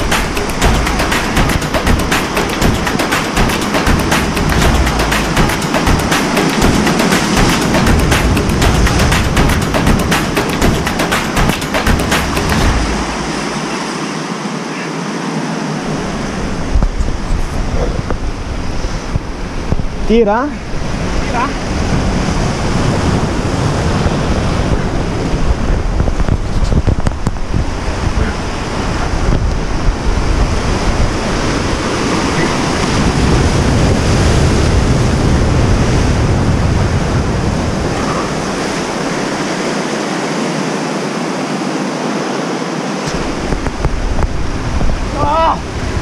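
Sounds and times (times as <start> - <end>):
sea waves breaking on boulders: 0.0 - 46.0
wind buffeting microphone: 15.7 - 42.0, 43.0 - 46.0.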